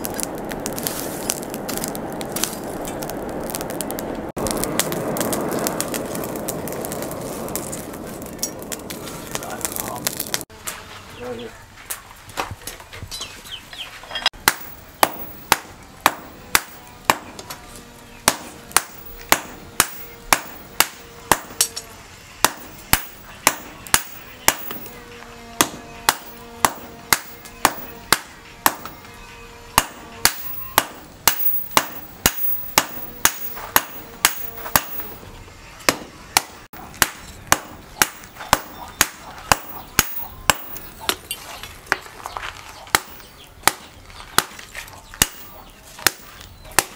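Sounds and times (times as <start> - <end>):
hammer striking metal on anvil: 14.4 - 17.5, 18.3 - 21.8, 22.4 - 25.0, 25.6 - 29.1, 29.8 - 35.2, 35.9 - 41.3, 45.2 - 46.9.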